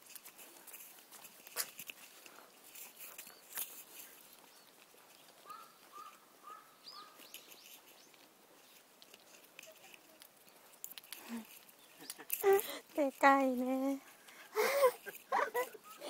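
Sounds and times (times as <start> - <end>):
high bird chirp: 4.2 - 8.2.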